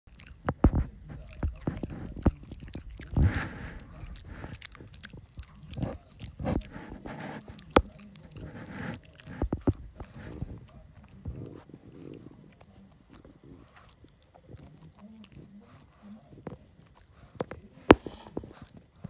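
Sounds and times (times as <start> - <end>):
dog chewing on a cord: 0.1 - 19.0.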